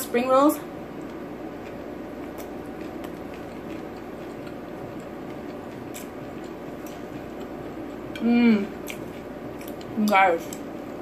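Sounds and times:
low background hum: 0.0s - 11.0s
quiet chewing: 0.9s - 10.7s.

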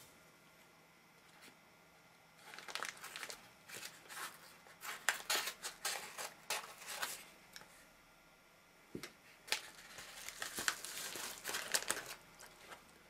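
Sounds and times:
paper crinkling: 2.4s - 7.3s, 9.5s - 12.9s.

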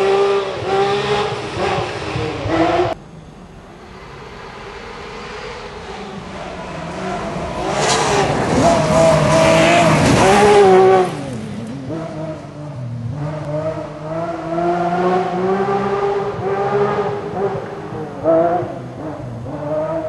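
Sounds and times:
rally car engine revving: 0.0s - 3.0s, 4.0s - 20.0s.

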